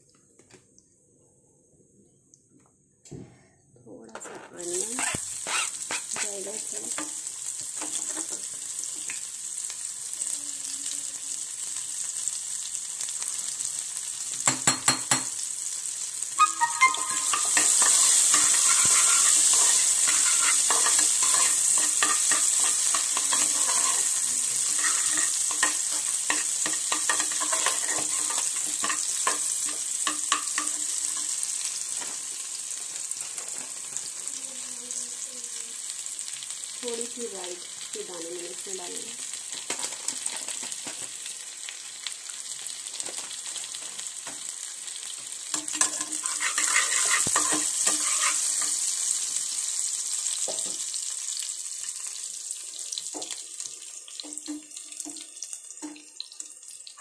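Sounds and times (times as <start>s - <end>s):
oil crackles: 4.6s - 6.9s, 16.3s - 29.1s, 39.4s - 44.2s
onions sizzling in hot oil: 4.6s - 57.0s
spatula stirring in pan: 5.0s - 8.5s, 16.4s - 32.2s, 45.5s - 49.2s.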